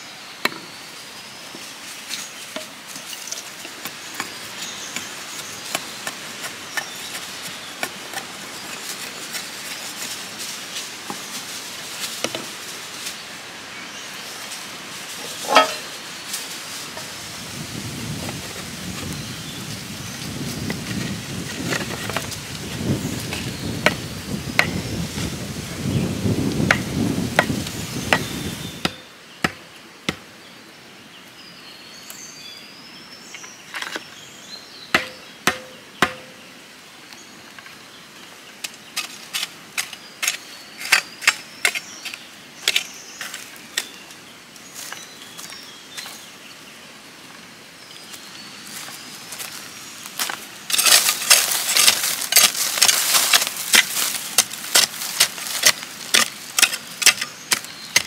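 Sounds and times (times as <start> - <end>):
hoe blade chopping stony soil: 3.8 - 8.4, 35.0 - 36.4, 50.7 - 58.0
hoe scraping through earth: 15.2 - 16.0.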